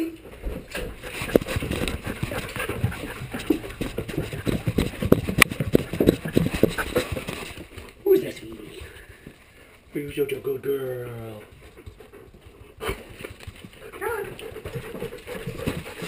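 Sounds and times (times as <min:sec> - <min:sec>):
dog footfalls on stairs: 0:00.3 - 0:08.0, 0:11.5 - 0:16.0.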